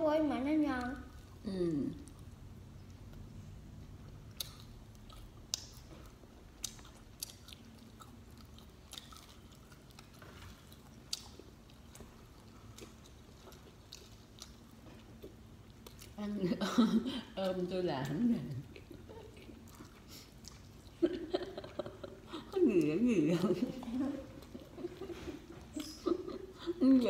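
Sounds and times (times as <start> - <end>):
chewing bread: 3.9 - 16.2, 18.0 - 26.4.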